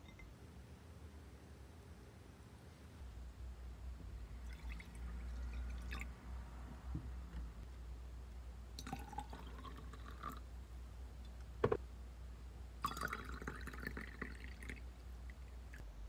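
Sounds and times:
water pouring into a glass: 4.3s - 6.1s, 8.8s - 10.4s, 12.8s - 14.8s.

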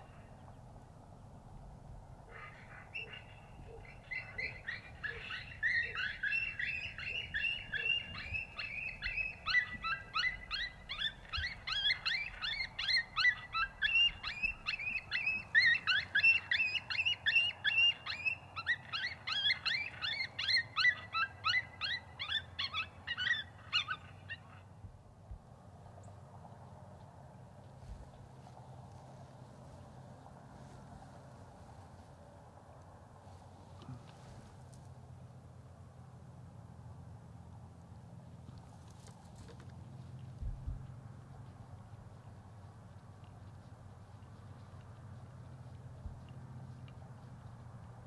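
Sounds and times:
chorus of high animal calls: 2.3s - 24.7s.

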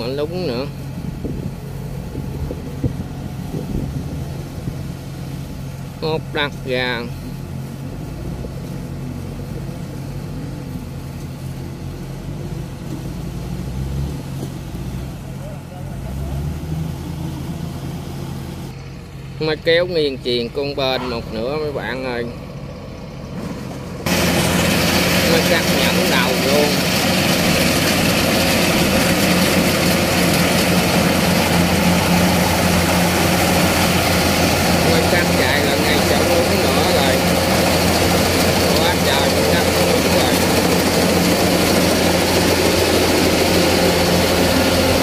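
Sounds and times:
diesel engine humming: 0.0s - 45.0s.

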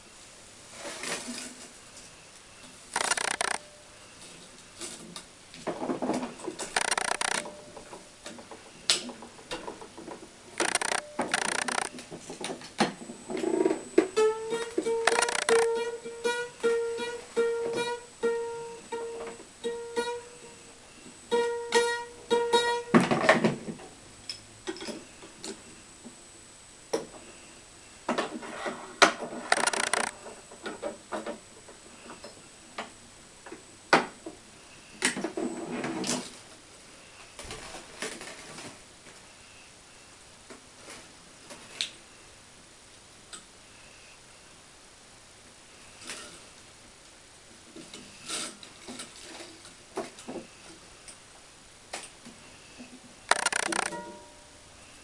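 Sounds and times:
repeating mid-pitched tone: 3.0s - 3.7s, 6.8s - 7.5s, 10.6s - 11.9s, 15.0s - 15.7s, 29.5s - 30.1s, 53.3s - 54.0s.

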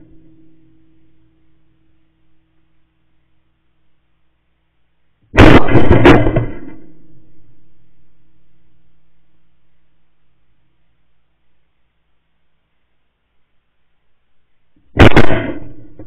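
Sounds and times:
shotgun blasts: 5.4s - 7.2s, 14.9s - 16.0s
gunshot echo: 5.4s - 7.6s, 14.9s - 16.0s.

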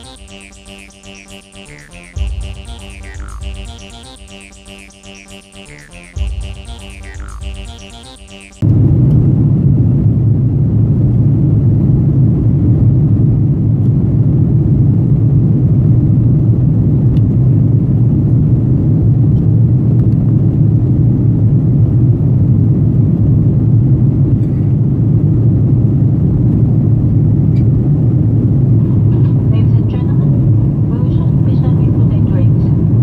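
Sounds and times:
jet cabin engine rumble: 8.6s - 33.0s.

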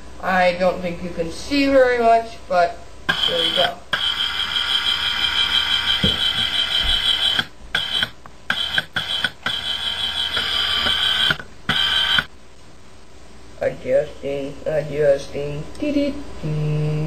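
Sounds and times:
camcorder zoom motor whine: 3.1s - 12.3s.

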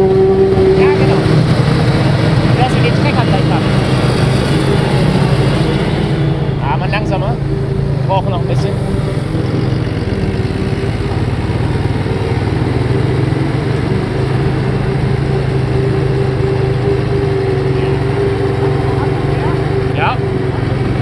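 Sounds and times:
tractor engine hum: 0.0s - 21.0s.

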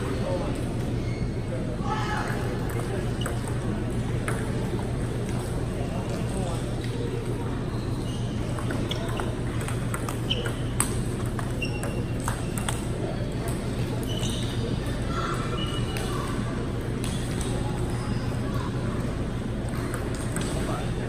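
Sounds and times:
table tennis ball clicks: 8.5s - 14.4s.

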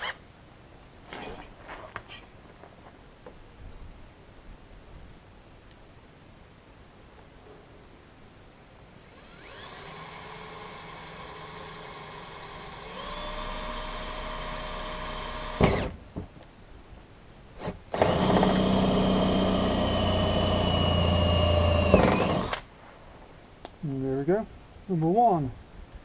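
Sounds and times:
cordless drill boring through plastic: 9.1s - 15.9s, 18.0s - 22.6s.

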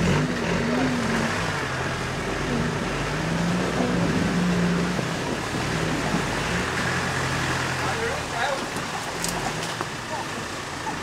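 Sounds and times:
engine revving under load: 0.0s - 8.3s.

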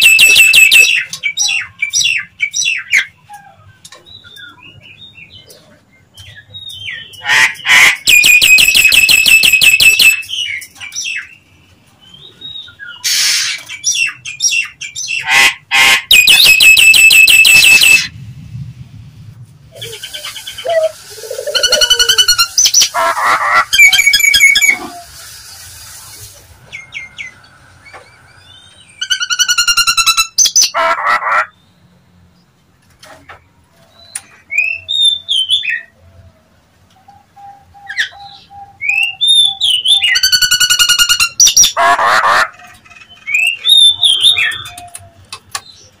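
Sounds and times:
myna calling and whistling: 0.0s - 5.5s, 6.2s - 11.5s, 12.1s - 18.1s, 19.7s - 31.6s, 37.0s - 42.5s, 43.1s - 46.0s
harsh rasping bird call: 19.8s - 25.8s.

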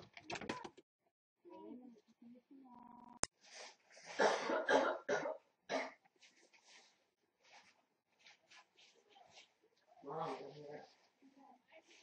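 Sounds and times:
person coughing: 4.2s - 6.0s.

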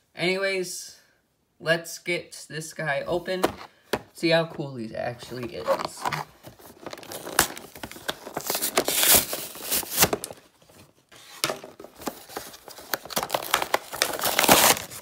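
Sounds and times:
plastic packaging crinkling: 5.4s - 11.0s, 11.6s - 15.0s.

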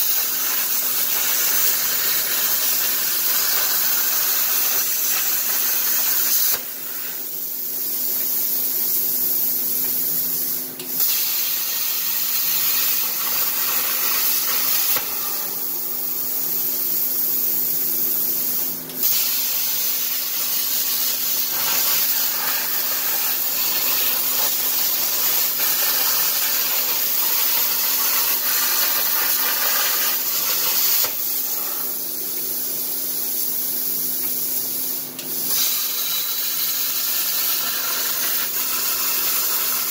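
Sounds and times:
plasma arc popping: 0.0s - 7.2s, 10.8s - 16.0s, 19.0s - 32.5s, 35.2s - 39.9s
plasma cutter hissing: 0.0s - 39.9s.

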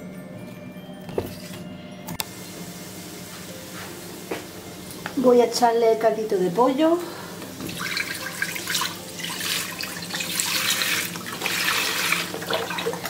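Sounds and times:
broth pouring into metal saucepan: 7.5s - 13.0s.

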